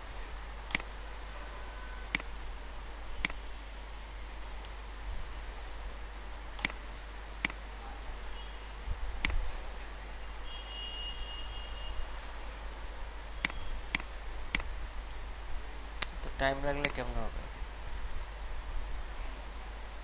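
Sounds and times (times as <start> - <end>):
computer mouse clicks: 0.7 - 0.9, 6.6 - 6.8.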